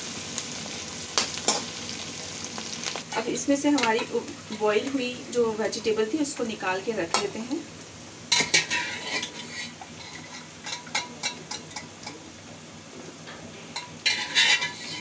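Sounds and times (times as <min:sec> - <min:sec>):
spoon scraping steel vessels: 0:08.4 - 0:11.4, 0:13.8 - 0:15.0.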